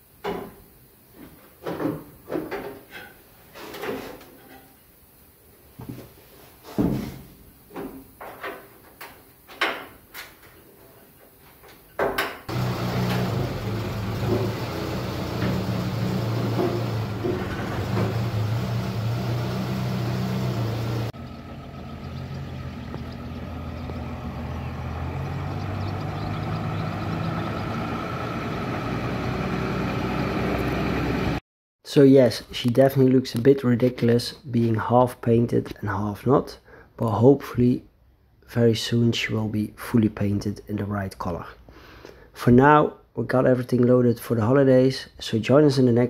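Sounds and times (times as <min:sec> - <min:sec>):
knocks and bangs: 0:12.0 - 0:18.7
car engine running: 0:12.5 - 0:31.4.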